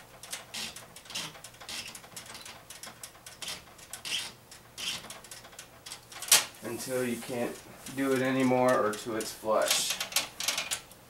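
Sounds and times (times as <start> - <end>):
plastic tube rubbing on fitting: 3.4 - 5.2.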